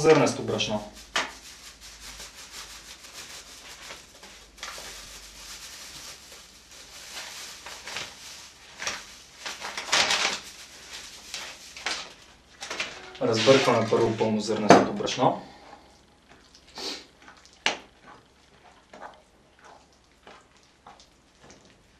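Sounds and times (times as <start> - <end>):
flour scraping in dough bowl: 13.2 - 14.3.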